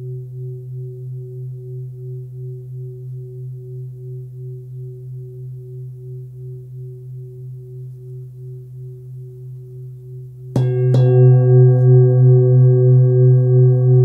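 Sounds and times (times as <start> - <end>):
singing bowl ringing: 9.7 - 14.0
singing bowl struck: 10.6 - 14.0.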